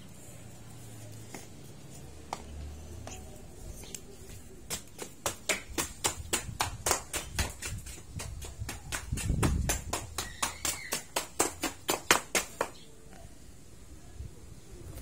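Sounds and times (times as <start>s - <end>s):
rapid sharp slaps: 4.6s - 12.8s.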